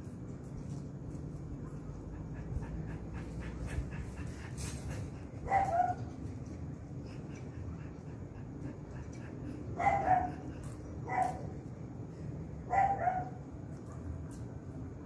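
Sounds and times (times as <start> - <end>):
dog panting: 1.1 - 11.8.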